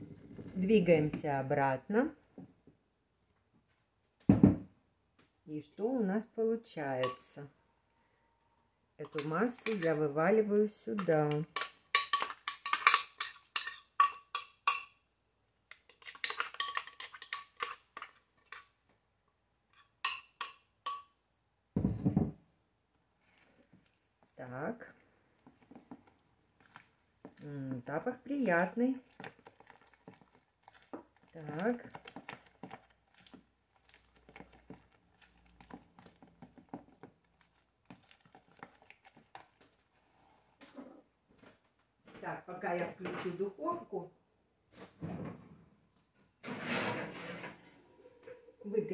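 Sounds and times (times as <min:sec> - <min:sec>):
metal spoon stirring batter: 0:07.0 - 0:07.4, 0:09.0 - 0:15.0, 0:15.7 - 0:18.8, 0:19.7 - 0:21.1, 0:25.4 - 0:40.4.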